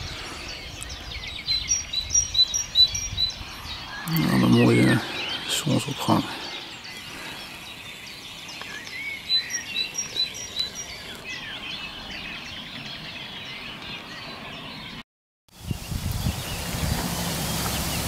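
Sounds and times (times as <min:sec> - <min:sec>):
birds chirping: 0:00.0 - 0:15.0, 0:15.6 - 0:18.0.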